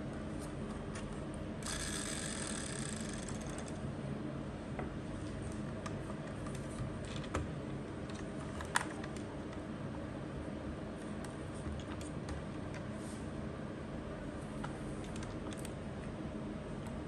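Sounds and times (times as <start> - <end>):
steady background hum: 0.0 - 17.0
scratchy mechanical whir and rattle: 1.6 - 3.8.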